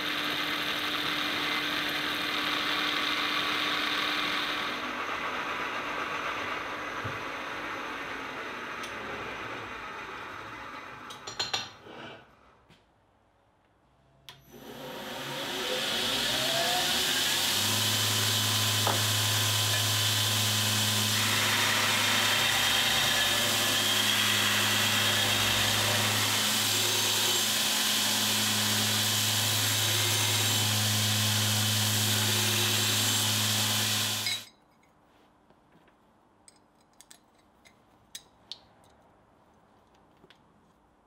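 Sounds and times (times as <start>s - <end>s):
belt grinder grinding steel: 14.6s - 34.5s
faint clicks of steel parts: 34.4s - 40.5s.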